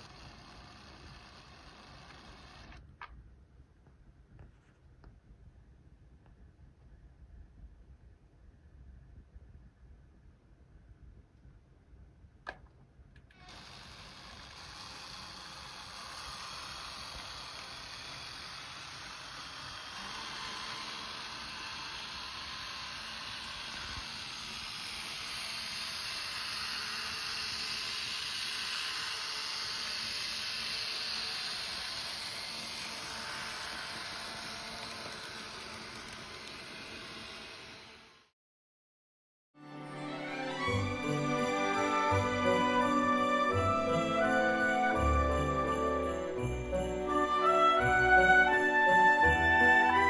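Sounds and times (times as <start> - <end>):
model train whirring on track: 0.0 - 2.8, 13.3 - 38.3, 40.3 - 50.0.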